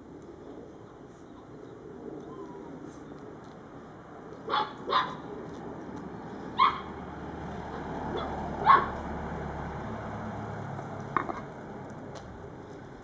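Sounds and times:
dog barking: 4.5 - 5.2, 6.6 - 6.9, 8.1 - 9.0.

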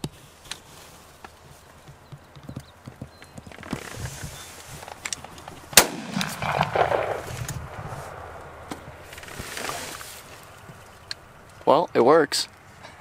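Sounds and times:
shotgun shot with echo: 5.8 - 8.4.

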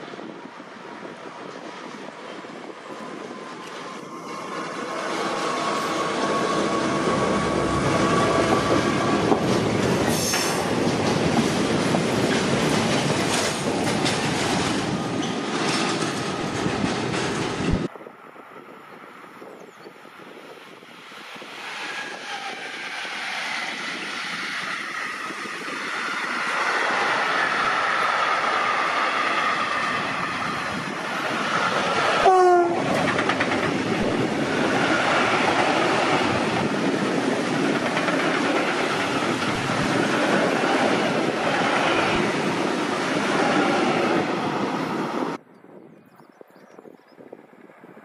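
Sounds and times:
train wheels rolling on track: 0.0 - 45.4
locomotive horn blast: 32.2 - 33.0.

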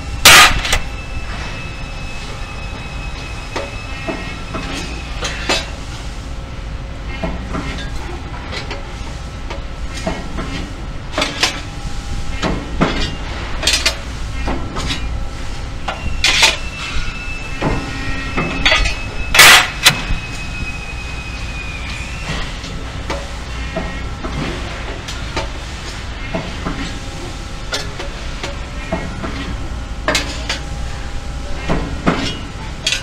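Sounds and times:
thin high whine: 0.0 - 5.8, 14.9 - 24.1
machine low hum: 0.0 - 33.0.

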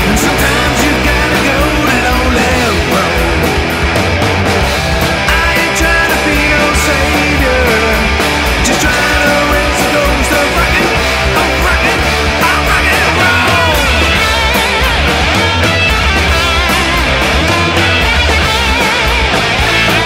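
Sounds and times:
distorted electric guitar: 0.0 - 20.0
drums with cymbal and snare: 0.0 - 20.0
electric bass: 0.0 - 20.0.

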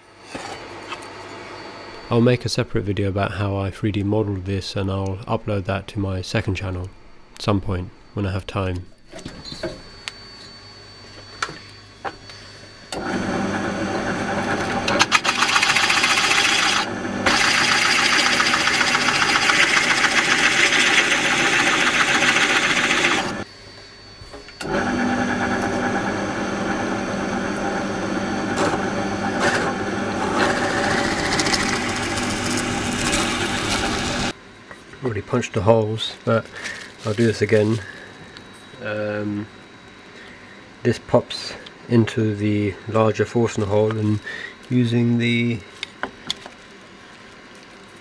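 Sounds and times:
drill press motor hum: 12.2 - 23.5, 24.4 - 34.4
drill bit rasping into wood: 15.0 - 23.4, 29.4 - 34.3.

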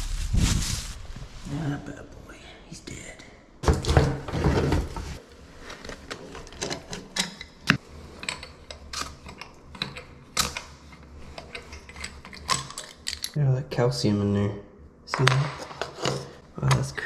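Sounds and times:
scraping rustle: 0.0 - 1.7.

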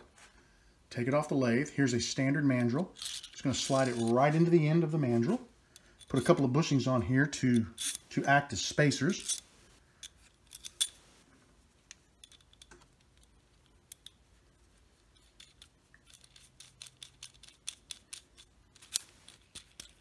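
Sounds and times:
metal clicks and scrapes: 3.0 - 4.5, 7.4 - 8.1, 9.1 - 11.1, 11.9 - 14.2, 15.0 - 20.0.

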